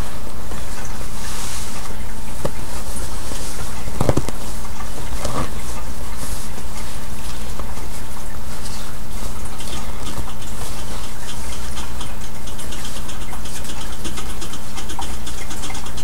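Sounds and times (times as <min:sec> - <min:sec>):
steady hum and hiss: 0:00.0 - 0:16.0
rustling of baby clothes: 0:00.6 - 0:11.5.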